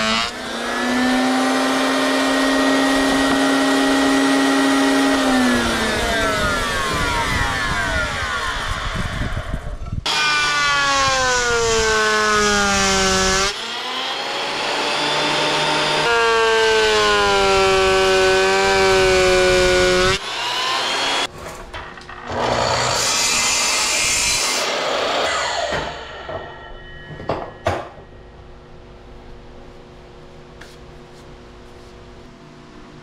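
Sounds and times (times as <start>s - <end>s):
thickness planer cutting wood: 0.0s - 9.4s, 10.1s - 21.3s, 22.2s - 26.1s
miter saw cutting wood: 0.0s - 21.3s, 22.1s - 26.4s
jointer cutting wood: 0.0s - 26.5s.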